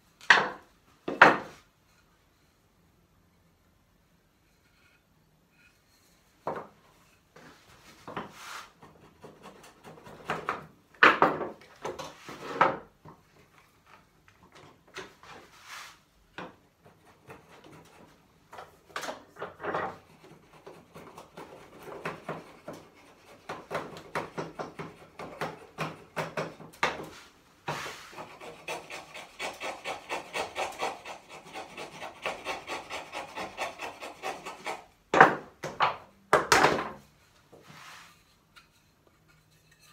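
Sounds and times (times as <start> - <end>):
hand tool scraping wood: 7.1 - 10.6, 16.8 - 18.7, 19.4 - 34.9
back-and-forth rubbing on wood: 7.4 - 10.1, 27.1 - 34.9.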